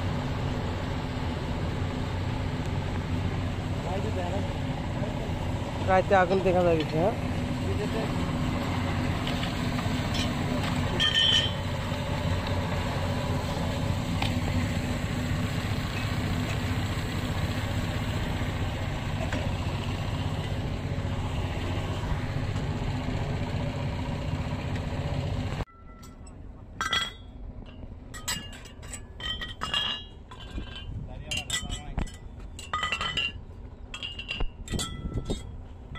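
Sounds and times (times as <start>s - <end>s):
engine droning: 0.0s - 35.9s
hard objects clinking: 25.8s - 35.6s.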